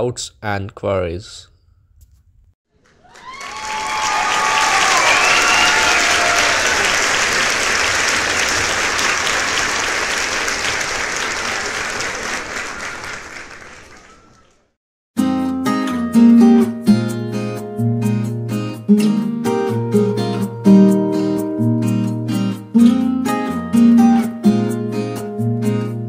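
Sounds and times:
crowd applause: 2.7 - 14.8
crowd cheering: 2.7 - 14.8
strummed acoustic guitar music: 15.2 - 26.0.

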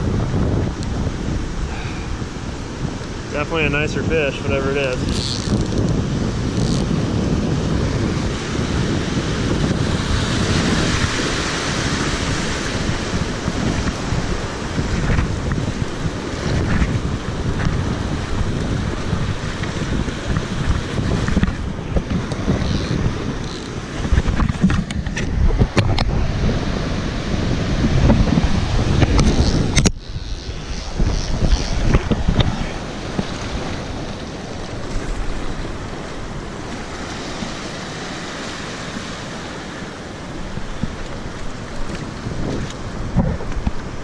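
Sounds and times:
ocean surf washing: 0.0 - 44.0
wind buffeting microphone: 0.0 - 44.0.

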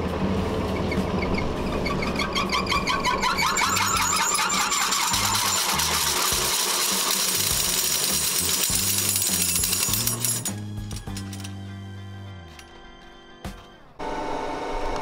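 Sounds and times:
hammer mill rotor metallic clatter: 0.6 - 11.6.

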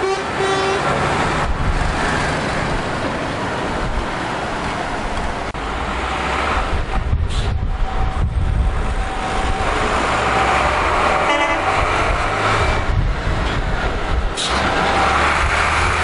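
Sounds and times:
lorry horn toot: 0.0 - 0.9, 11.2 - 11.8
lorry diesel engine: 0.0 - 16.0.

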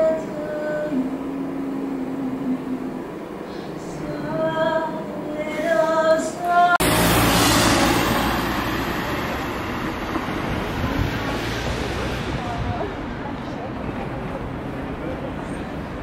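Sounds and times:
woman singing: 0.0 - 3.0, 3.8 - 6.8
street traffic: 6.7 - 16.0.

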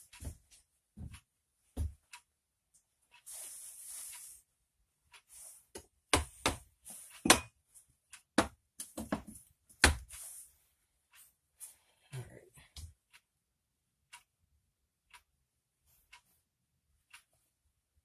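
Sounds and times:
steel wedges knocking on bench: 7.2 - 7.5.

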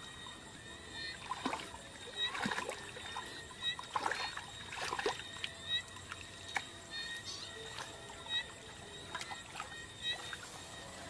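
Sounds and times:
hands splashing in muddy water: 3.9 - 5.2.

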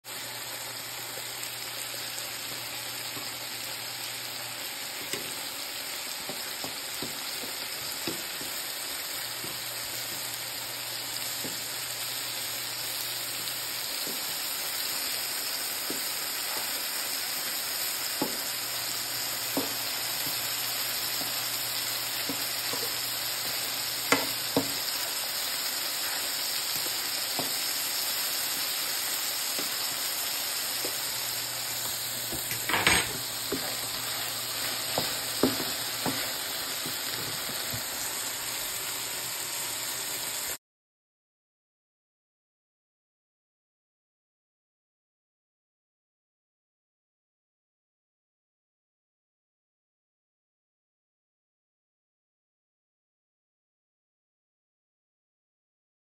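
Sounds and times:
mushrooms sizzling in oil: 0.0 - 40.6.

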